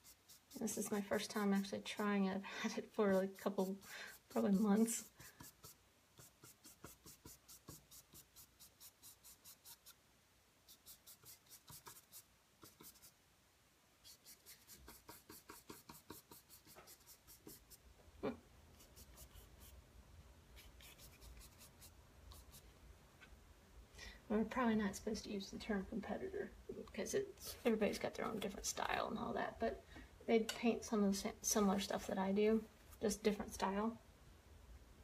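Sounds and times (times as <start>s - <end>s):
brush strokes on canvas: 14.0s - 17.8s.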